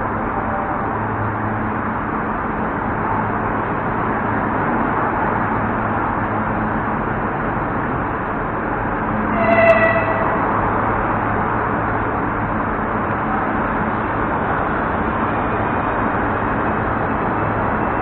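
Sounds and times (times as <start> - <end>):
short high train horn: 9.3 - 10.8.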